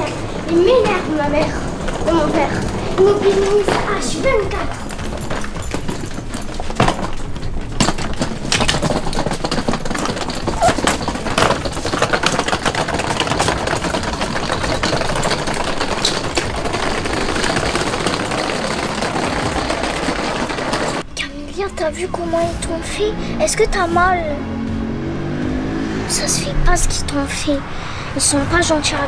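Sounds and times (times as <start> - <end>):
suitcase wheels rolling on bricks: 0.0 - 21.1.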